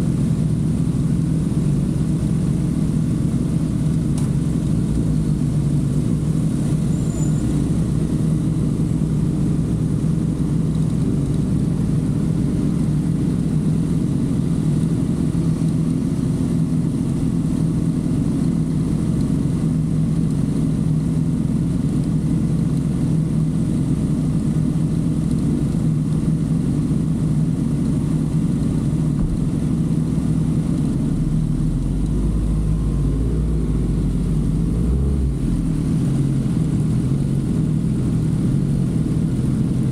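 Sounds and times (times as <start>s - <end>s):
deep low rumble: 28.2s - 39.9s.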